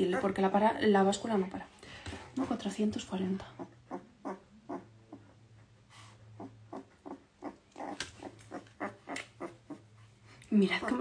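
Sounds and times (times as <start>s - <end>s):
puppy grunting and squeaking: 0.0s - 0.5s, 2.3s - 2.8s, 3.5s - 11.0s.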